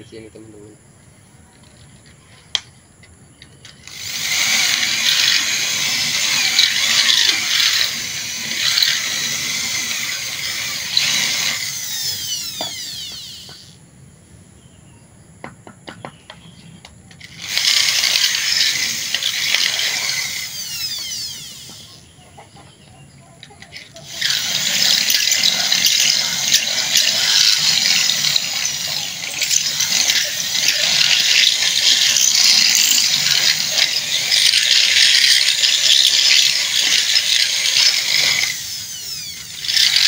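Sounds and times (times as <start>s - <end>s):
electric drill boring into metal: 3.8s - 13.8s, 17.2s - 22.0s, 24.0s - 40.0s.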